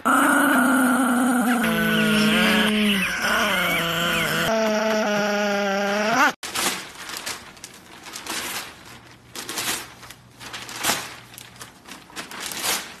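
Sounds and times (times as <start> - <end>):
newspaper rustling and crinkling: 6.4 - 13.0.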